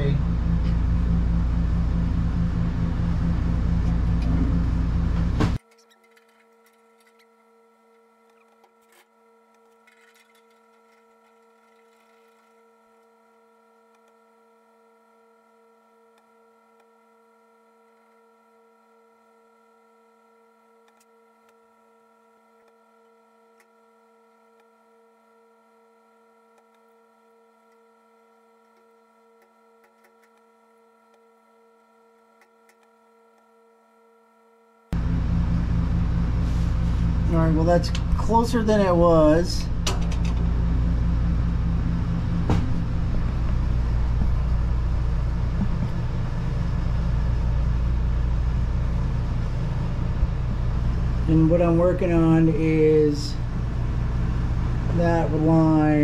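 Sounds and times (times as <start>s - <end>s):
loud low noise: 0.0s - 5.6s, 35.0s - 56.0s
faint steady hum: 0.0s - 56.0s.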